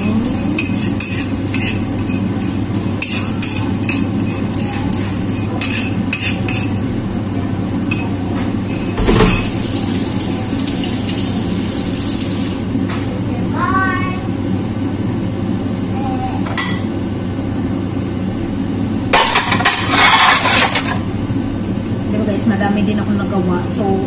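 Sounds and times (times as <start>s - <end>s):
utensil clinking against a dish: 0.0s - 6.8s, 7.9s - 9.7s
steady low hum: 0.0s - 24.0s.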